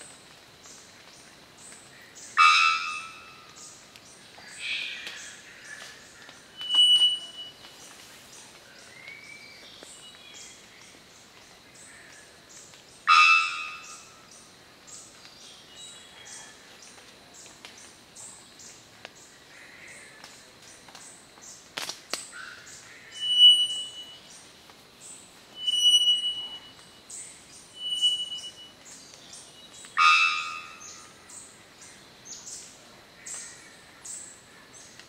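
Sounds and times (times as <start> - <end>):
high penetrating bird whistle: 6.6 - 7.5, 23.2 - 24.2, 25.6 - 26.8, 27.8 - 28.7
loud multi-tone bird note: 23.2 - 24.1, 25.6 - 26.7, 30.0 - 31.0.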